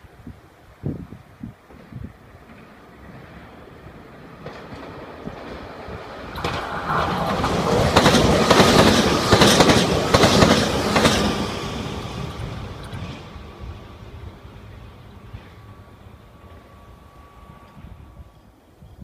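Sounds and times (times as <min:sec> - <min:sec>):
electric train rumble: 0:00.0 - 0:19.0
wheels clacking over rail joints: 0:01.6 - 0:16.8.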